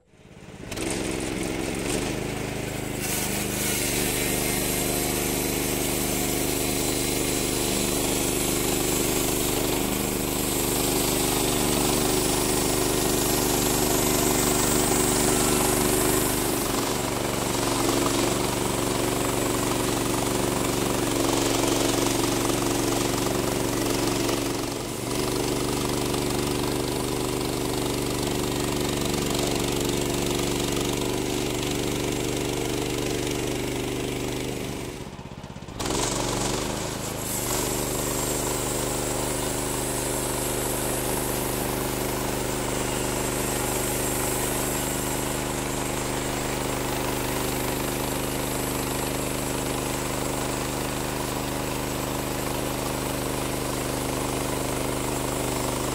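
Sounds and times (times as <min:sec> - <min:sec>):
band sawmill cutting log: 0:00.0 - 0:55.9.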